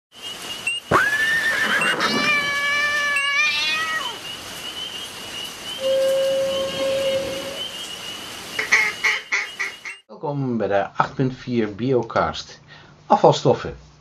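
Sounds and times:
lower held tone: 5.8 - 7.8
rising sweep into held tone: 5.8 - 7.9
wavering tone with overtones: 5.8 - 7.9.

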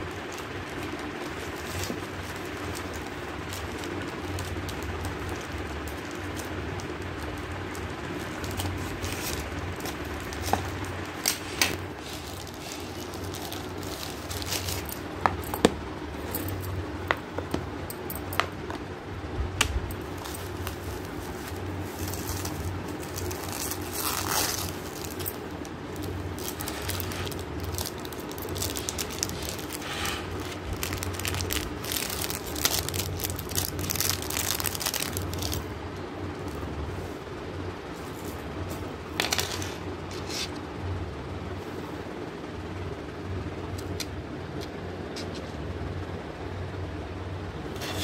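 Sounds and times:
plastic packaging crinkling: 0.0 - 16.7, 19.8 - 35.7
low steady hum: 0.0 - 48.0.

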